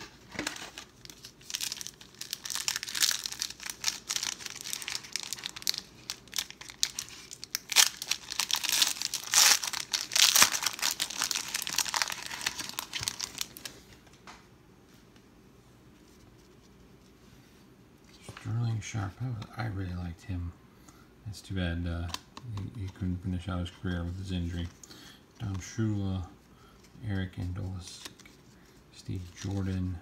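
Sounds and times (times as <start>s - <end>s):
foil wrapper crinkling: 0.0s - 13.8s.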